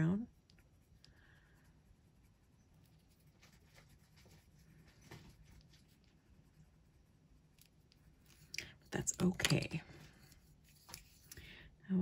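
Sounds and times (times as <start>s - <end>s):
colored pencil shading on paper: 0.0s - 9.3s.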